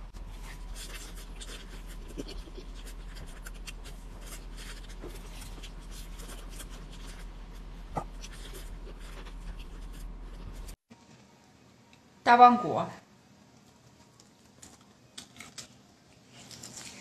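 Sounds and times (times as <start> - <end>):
chewing crispy fried chicken: 0.2 - 10.7.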